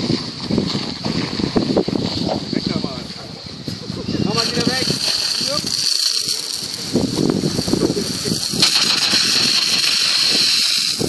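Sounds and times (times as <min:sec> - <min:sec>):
water spraying and splattering: 0:04.3 - 0:11.0.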